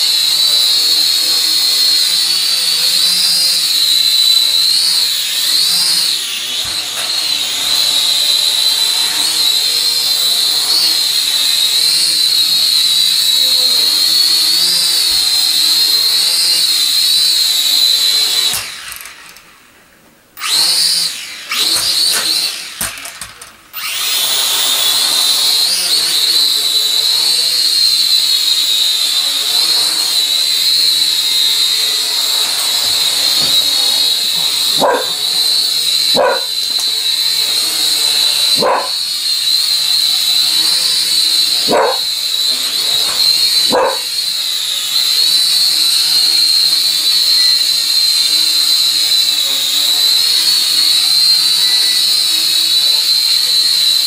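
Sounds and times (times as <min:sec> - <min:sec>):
toy drone motors whining: 0:00.0 - 0:54.0
dog barking: 0:34.8 - 0:35.2, 0:36.1 - 0:36.5, 0:38.6 - 0:39.0, 0:41.6 - 0:42.1, 0:43.7 - 0:44.1.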